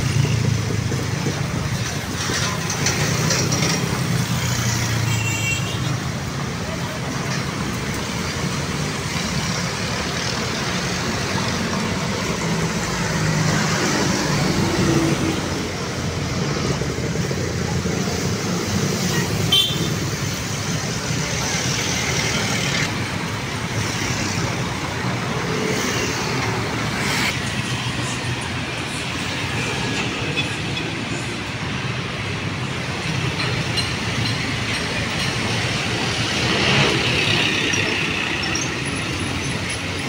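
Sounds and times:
city street traffic: 0.0 - 40.0.

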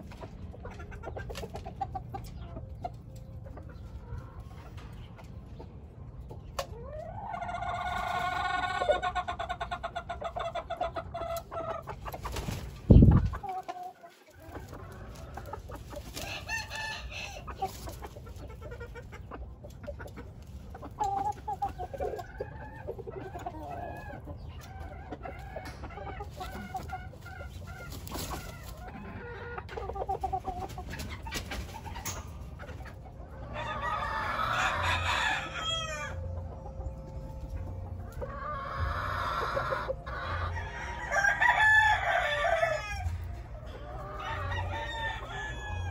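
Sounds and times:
birds clucking: 0.0 - 45.9
rooster crowing: 33.6 - 36.2, 40.4 - 43.1, 44.2 - 45.9.

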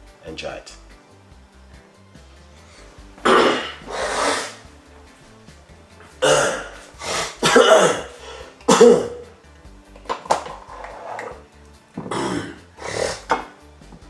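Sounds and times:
man coughing: 3.2 - 3.9, 6.2 - 9.2, 12.1 - 12.6.

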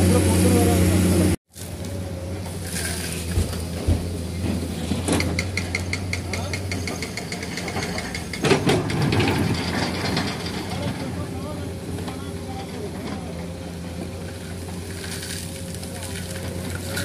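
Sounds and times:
excavator diesel engine running: 0.0 - 17.0
bucket crunching soil: 1.5 - 4.9, 14.5 - 17.0.

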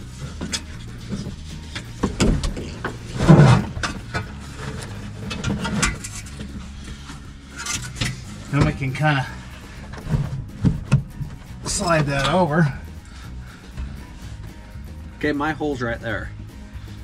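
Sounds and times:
low steady hum: 0.0 - 17.0
metal hardware clunking and knocking: 0.3 - 9.0
heavy thump: 2.0 - 5.9, 8.5 - 11.5.

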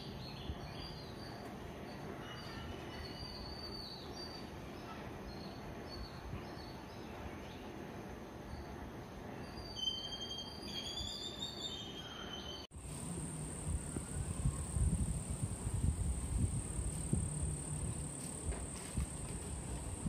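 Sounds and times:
faint outdoor hiss: 0.0 - 20.0
rising whistled bird notes: 9.5 - 12.7
songbirds chirping: 11.3 - 20.0
low wind rumble: 12.7 - 20.0
high-pitched whine: 12.8 - 20.0.

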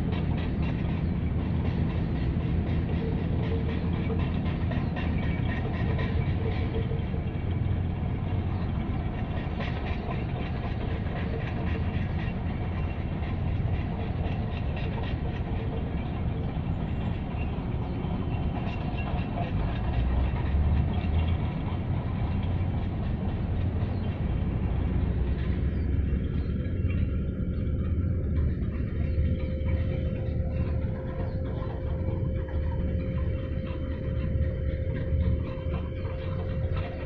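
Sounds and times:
low outdoor rumble: 0.0 - 37.0
faint hum: 15.8 - 37.0.

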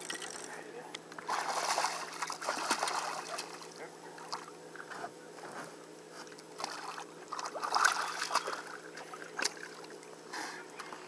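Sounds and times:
fish thrashing water splashing: 1.3 - 3.6, 6.6 - 10.0.

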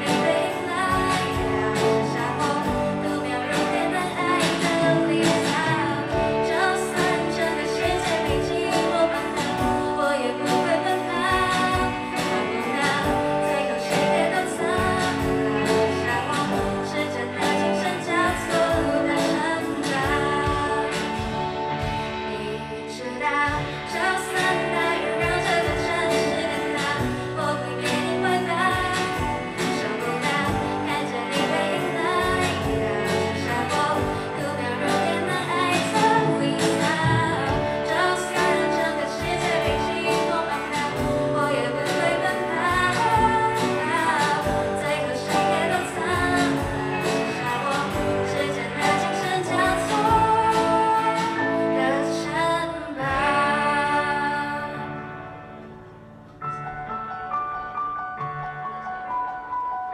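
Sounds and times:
drum kit: 0.0 - 54.8
young woman singing: 0.0 - 55.7
electric guitar: 0.0 - 59.9.

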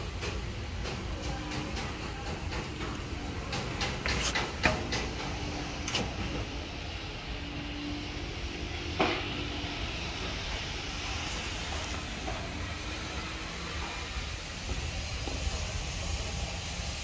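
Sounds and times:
sharp clicks and knocks: 0.0 - 6.5
construction site rumble: 0.0 - 17.0.

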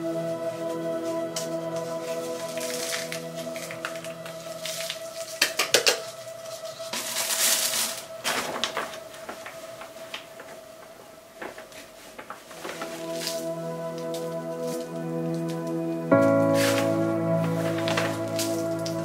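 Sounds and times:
soft background music: 0.0 - 19.0
soil rustling and scraping: 1.8 - 5.4, 16.3 - 19.0.

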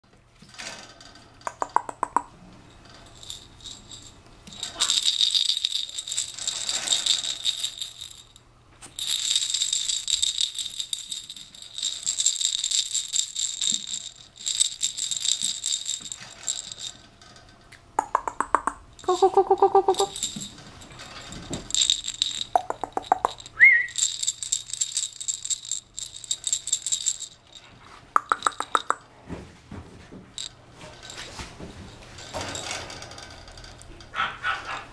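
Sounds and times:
jingling rattle toy shaken: 3.1 - 17.0, 18.2 - 29.0, 30.4 - 33.0
puppy yipping: 34.2 - 34.9.

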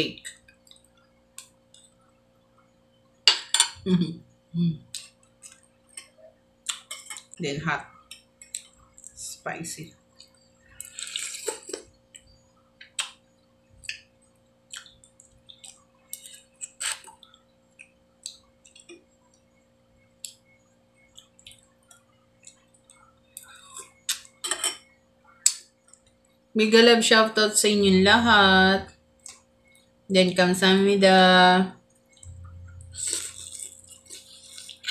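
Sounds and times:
wet chewing and mouth smacks: 14.7 - 19.5, 21.0 - 24.4, 33.0 - 34.9.

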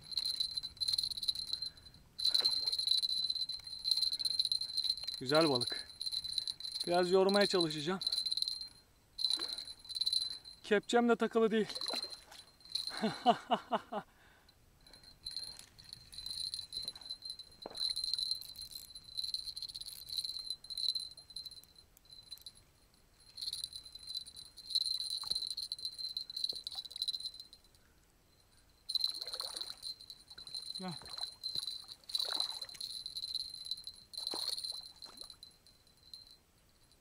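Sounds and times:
fishing reel drag clicking: 0.1 - 10.5.

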